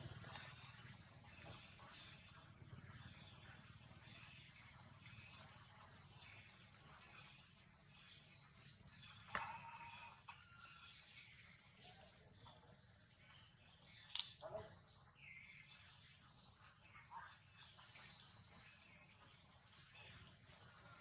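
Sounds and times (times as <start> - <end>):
insects chirring: 0.0 - 21.0
sharp click: 14.1 - 14.4.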